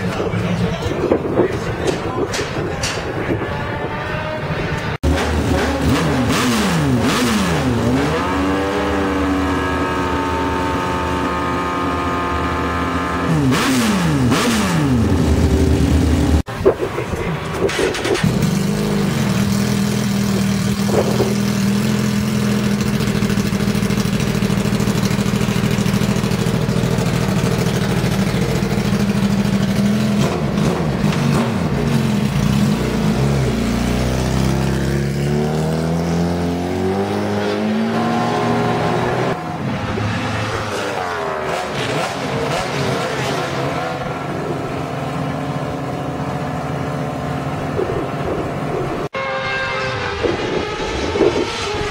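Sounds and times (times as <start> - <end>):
motorcycle engines revving: 0.0 - 51.9
motorcycle engine idling: 18.3 - 31.1.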